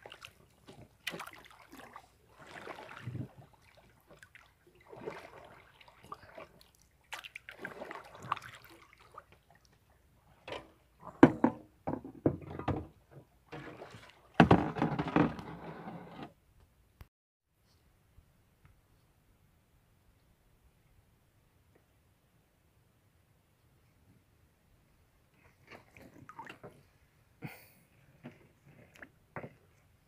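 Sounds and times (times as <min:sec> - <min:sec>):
water splashing from swimming: 0:00.0 - 0:10.4, 0:13.5 - 0:14.5, 0:25.6 - 0:26.8.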